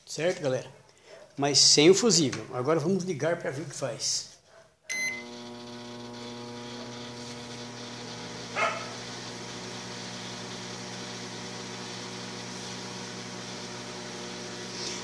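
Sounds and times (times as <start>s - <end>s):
microwave beep: 4.9s - 5.5s
microwave humming: 4.9s - 15.0s.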